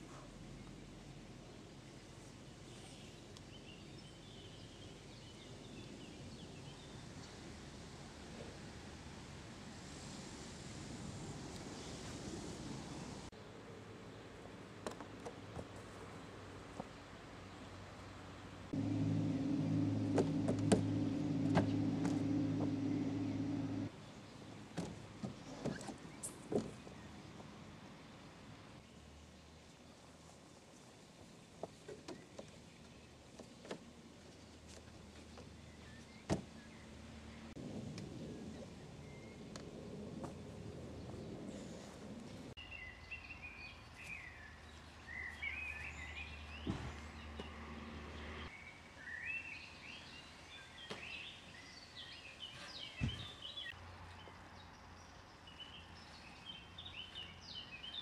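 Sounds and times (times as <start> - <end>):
low rumbling noise: 18.7 - 23.9
low motor hum: 18.8 - 23.9
small birds chirping: 42.6 - 47.6, 48.2 - 58.0.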